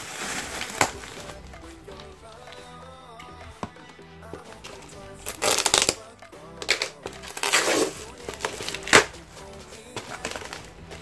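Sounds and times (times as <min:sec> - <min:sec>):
cardboard and plastic rustling: 0:00.0 - 0:02.5, 0:06.8 - 0:11.0
sharp crack: 0:04.6 - 0:10.7.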